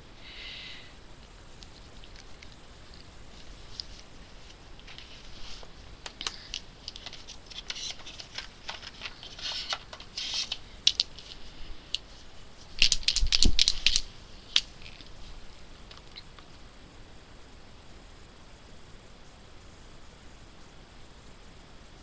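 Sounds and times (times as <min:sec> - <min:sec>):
plastic pens clicking and clattering: 0:06.0 - 0:12.0, 0:12.7 - 0:15.1.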